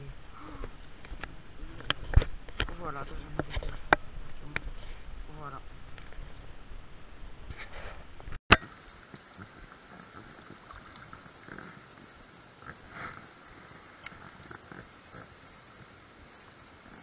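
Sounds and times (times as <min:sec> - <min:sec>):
river running over stones: 0:08.5 - 0:17.0.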